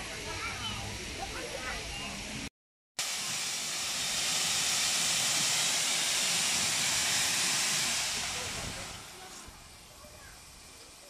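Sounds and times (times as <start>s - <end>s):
steam locomotive hissing: 0.0s - 11.0s.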